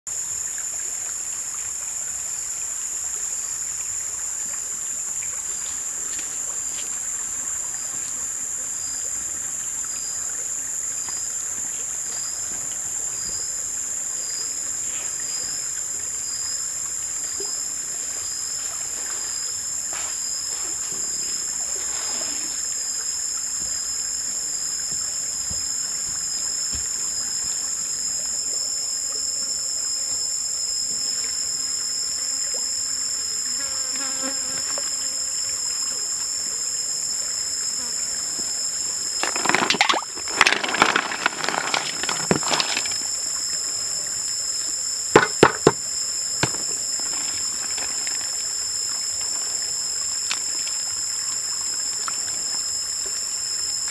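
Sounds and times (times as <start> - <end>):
insects droning: 0.1 - 53.9
pulsing insect trill: 0.1 - 53.9
faint rustles and knocks: 39.2 - 43.2, 45.2 - 48.5.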